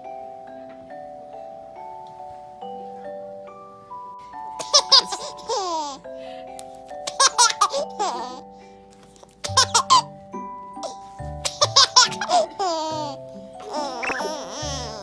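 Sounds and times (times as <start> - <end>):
background music: 0.0 - 15.0
baby giggling: 4.6 - 6.0, 7.1 - 8.4, 9.4 - 10.1, 10.8 - 15.0.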